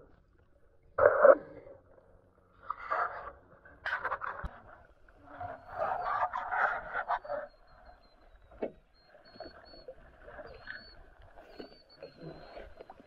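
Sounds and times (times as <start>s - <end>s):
water sloshing around boat: 4.8s - 13.0s.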